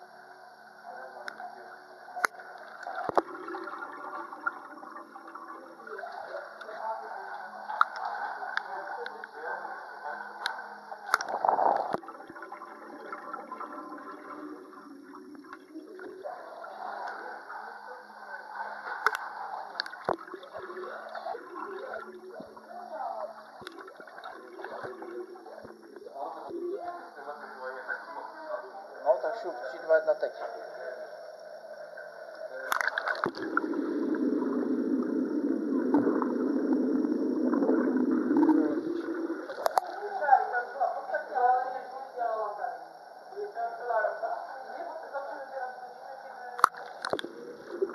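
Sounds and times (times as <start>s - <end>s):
underwater bubbles: 0.0s - 43.4s, 46.4s - 47.9s
pool water splashing: 2.2s - 22.8s, 32.5s - 40.5s.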